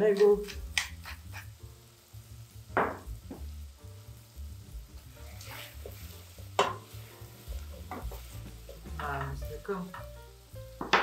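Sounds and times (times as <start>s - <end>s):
food sizzling in pot: 0.0s - 11.0s
wooden spoon scraping pot: 5.2s - 9.4s.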